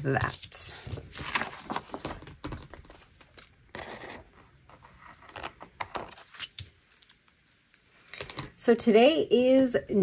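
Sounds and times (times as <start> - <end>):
paper rustling: 0.2 - 4.3.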